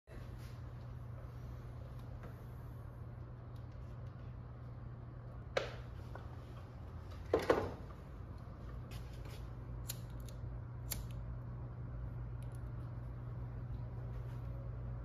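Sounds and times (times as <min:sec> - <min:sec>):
low steady hum: 0:00.1 - 0:15.0
lighter clicking: 0:09.8 - 0:11.2
sharp snaps: 0:09.8 - 0:11.2.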